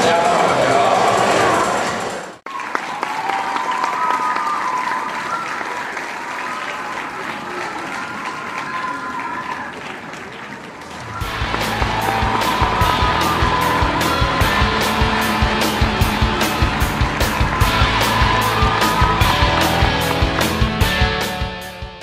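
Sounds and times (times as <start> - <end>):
audience applauding: 0.0 - 21.5
voices calling out: 4.8 - 20.6.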